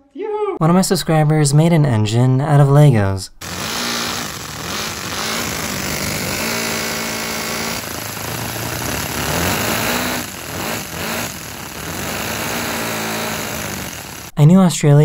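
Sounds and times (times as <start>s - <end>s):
toy piston engine clattering: 3.4s - 14.3s.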